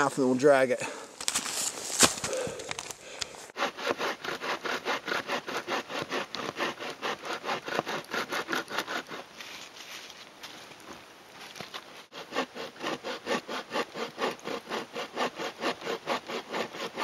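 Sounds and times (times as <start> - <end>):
saw cutting through log: 3.5 - 9.4, 12.1 - 17.0.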